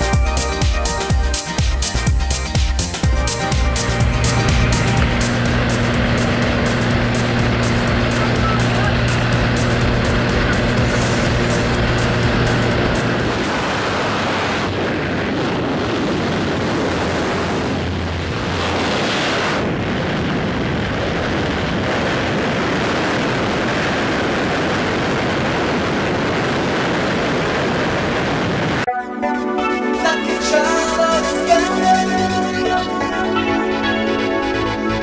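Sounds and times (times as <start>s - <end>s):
plane engine and propeller: 1.8s - 28.9s
rush of air: 8.9s - 28.9s.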